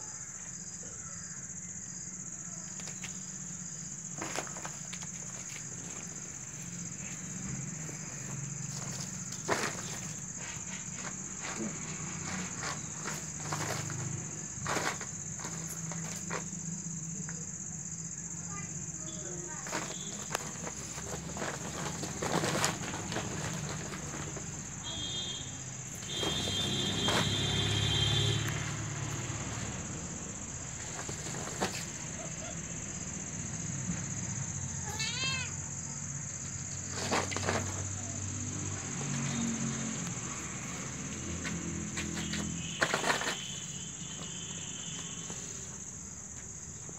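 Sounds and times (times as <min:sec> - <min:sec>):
crickets chirring: 0:00.0 - 0:46.9
plastic sack rustling: 0:02.8 - 0:16.5, 0:19.5 - 0:28.4, 0:30.6 - 0:32.4, 0:36.8 - 0:38.1, 0:42.0 - 0:44.9
plastic tarp crinkling: 0:19.6 - 0:25.4, 0:26.0 - 0:28.4, 0:42.1 - 0:43.7
cat meowing: 0:34.8 - 0:35.6.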